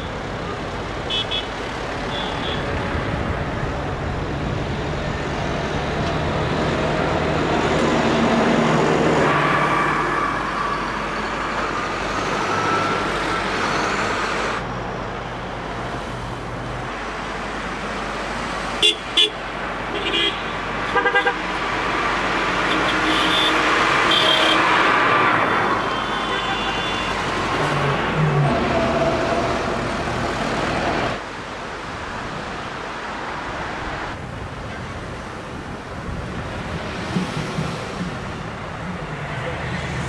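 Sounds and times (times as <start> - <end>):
vehicles driving past: 0.0 - 40.0
vehicle horn toots: 22.7 - 24.6, 25.8 - 27.2.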